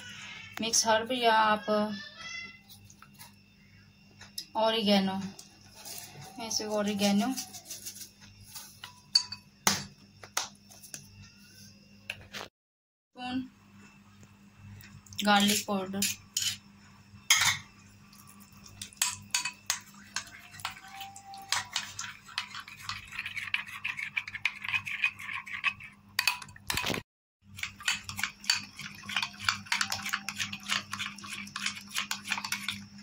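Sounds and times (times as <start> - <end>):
spoon stirring in glass bowl: 15.2 - 16.6, 18.1 - 33.0.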